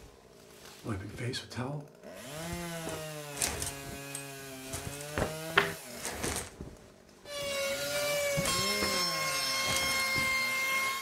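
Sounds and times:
sharp knocks of wood: 0:04.8 - 0:05.8.

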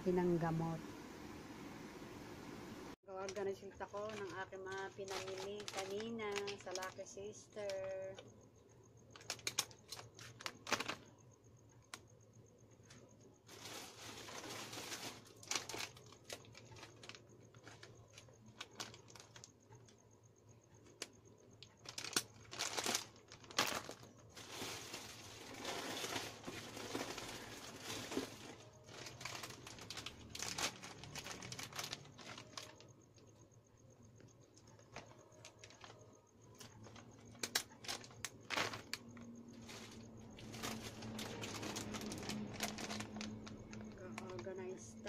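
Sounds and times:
plastic packaging crinkling: 0:03.2 - 0:08.2, 0:09.1 - 0:11.1, 0:13.5 - 0:19.9, 0:20.9 - 0:32.9, 0:34.7 - 0:44.6.

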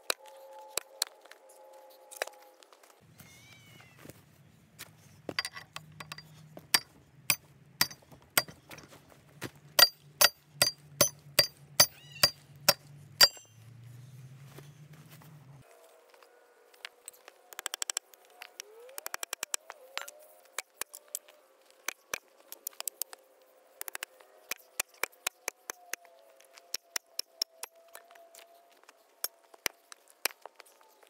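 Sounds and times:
hammer striking steel: 0:06.8 - 0:08.5, 0:09.8 - 0:13.5.

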